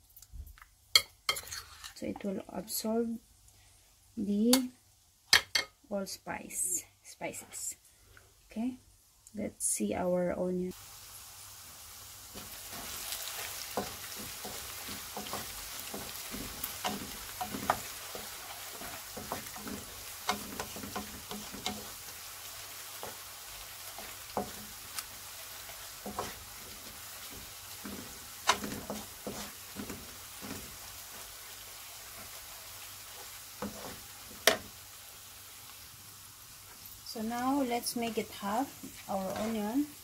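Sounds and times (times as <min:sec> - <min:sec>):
onions sizzling in oil: 0:00.9 - 0:07.7, 0:08.6 - 0:40.0
spatula tapping and scraping pan: 0:12.4 - 0:22.2, 0:22.8 - 0:31.3, 0:33.1 - 0:34.7, 0:38.8 - 0:39.7.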